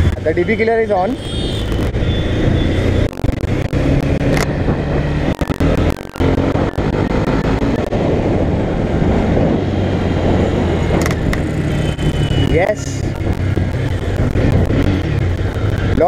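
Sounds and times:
motorcycle engine running: 10.2 - 16.0.

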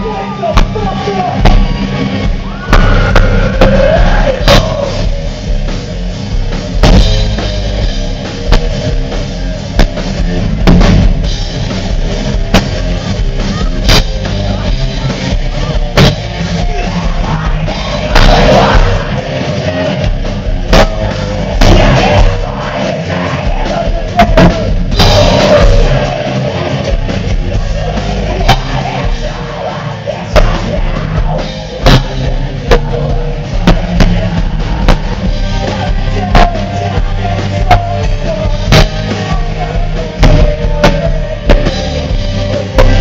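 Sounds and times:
live rock band playing: 0.0 - 43.0
pounding drum kit: 0.0 - 43.0
person singing: 20.7 - 43.0.

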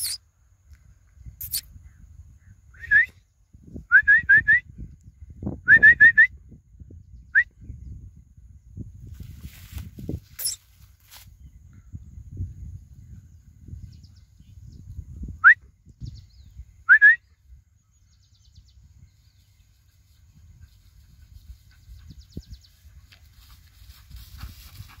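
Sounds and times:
person whistling for dog: 2.8 - 3.2, 3.8 - 4.7, 5.6 - 6.4, 15.4 - 15.7, 16.9 - 17.3.

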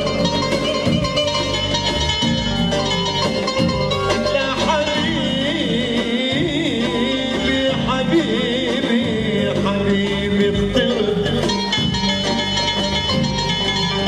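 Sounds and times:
live band playing: 0.0 - 14.0
man singing: 4.1 - 11.9.

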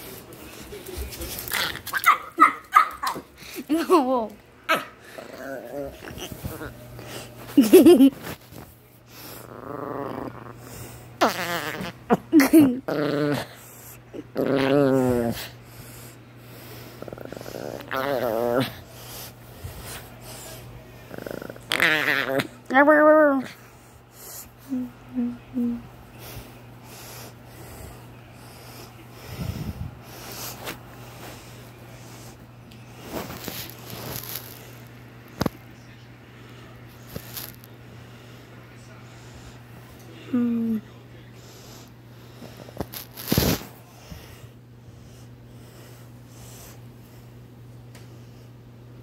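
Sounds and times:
small dog growling and whining: 4.7 - 6.8, 9.3 - 15.6, 17.0 - 18.9, 21.1 - 23.6.

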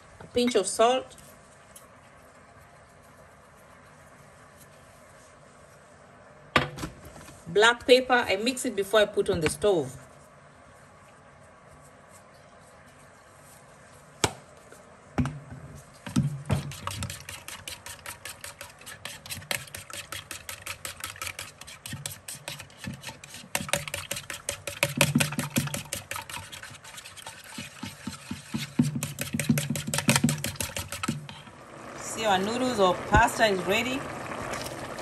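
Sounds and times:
spatula beating eggs in bowl: 16.5 - 31.6.

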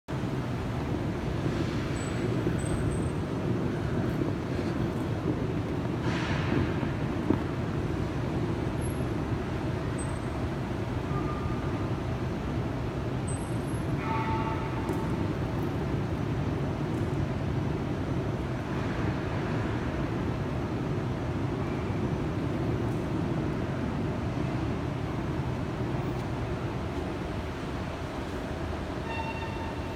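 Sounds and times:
low rumble of station concourse: 0.1 - 29.9
high ringing tone: 29.0 - 29.9.

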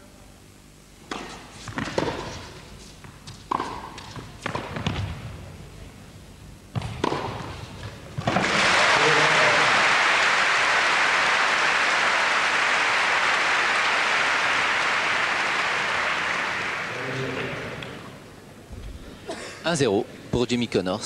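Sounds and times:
racket striking tennis ball: 1.0 - 5.2, 6.7 - 8.6
tennis ball bouncing: 1.1 - 5.4, 6.7 - 8.5
crowd applauding: 8.3 - 18.2.

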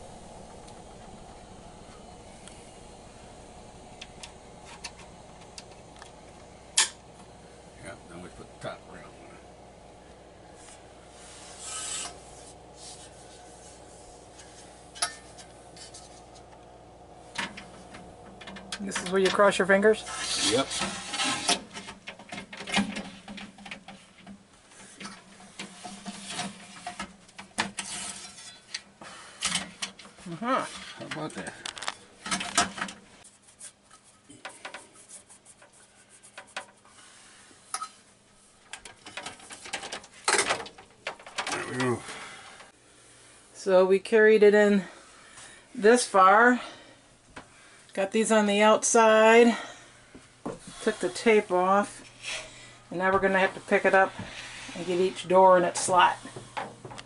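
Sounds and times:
metal track scraping: 10.6 - 16.3, 18.9 - 21.7, 27.8 - 28.6.

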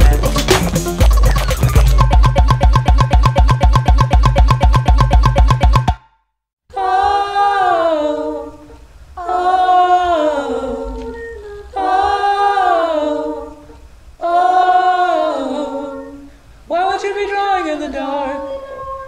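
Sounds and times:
voices singing in close harmony: 6.7 - 19.0.

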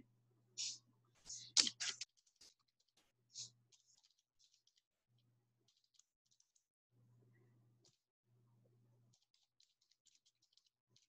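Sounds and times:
faint low hum: 0.0 - 2.0, 6.4 - 9.4.

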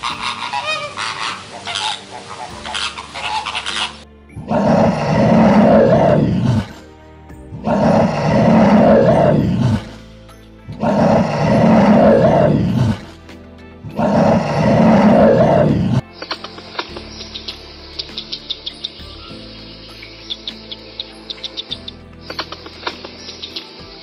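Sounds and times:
bear roaring: 0.0 - 6.9, 7.5 - 10.0, 10.7 - 13.1, 13.8 - 16.0
quiet background music: 0.0 - 24.0.

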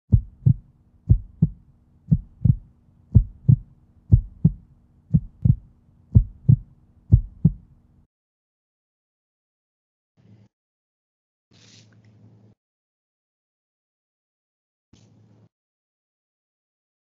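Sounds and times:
heartbeat thumps: 0.1 - 7.7
faint low hum: 0.1 - 8.1.

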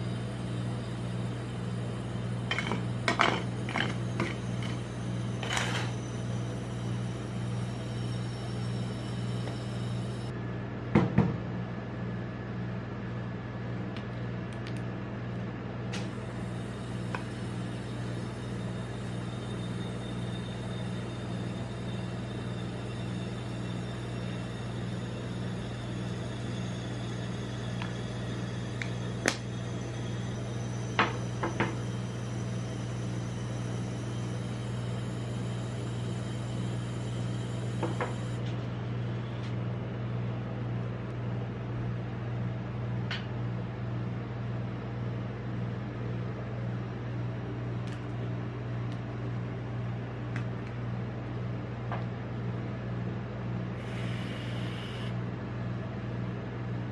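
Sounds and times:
refrigerated machine humming: 0.0 - 56.9.

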